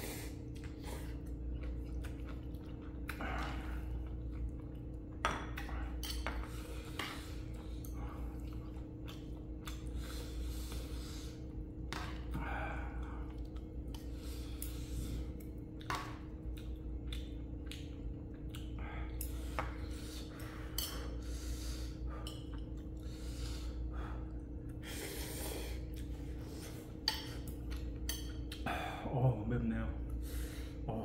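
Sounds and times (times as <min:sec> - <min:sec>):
steady low hum: 0:00.0 - 0:31.0
utensils clinking against bowl: 0:05.2 - 0:07.2, 0:20.6 - 0:21.2
breathing: 0:09.9 - 0:13.3, 0:14.0 - 0:15.4, 0:18.8 - 0:22.4, 0:23.0 - 0:26.9, 0:30.2 - 0:30.9.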